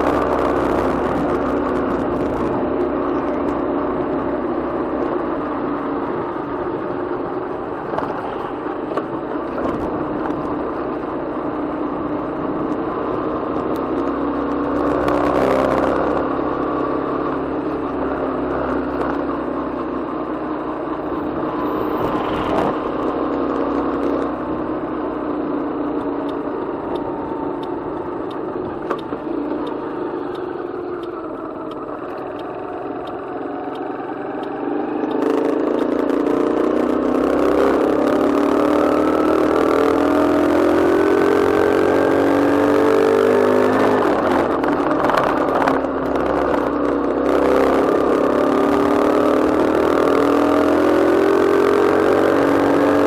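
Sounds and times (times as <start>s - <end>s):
wind noise: 0.0s - 3.7s, 6.0s - 10.8s, 21.0s - 23.2s, 39.7s - 49.4s
vehicles passing: 0.0s - 53.0s.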